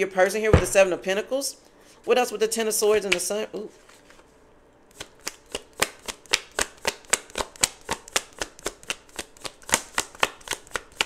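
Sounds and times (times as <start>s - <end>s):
cards being shuffled by hand: 4.9s - 11.0s.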